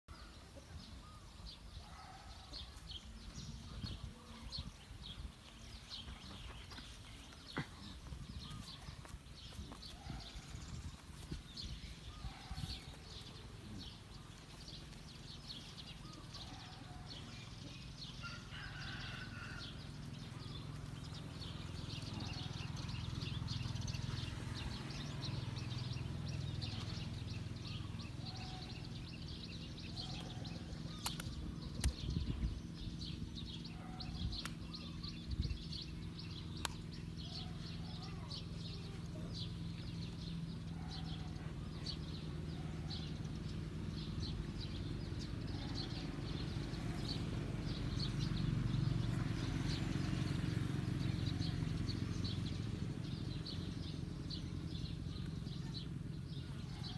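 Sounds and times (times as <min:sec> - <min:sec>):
birds chirping and calling: 0:00.1 - 0:56.9
sharp clicks: 0:31.0 - 0:32.0.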